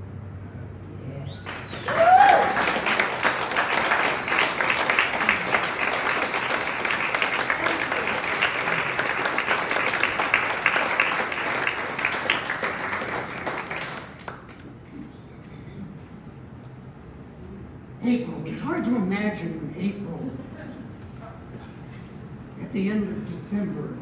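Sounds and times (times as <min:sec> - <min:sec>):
audience applauding: 0:01.4 - 0:14.8.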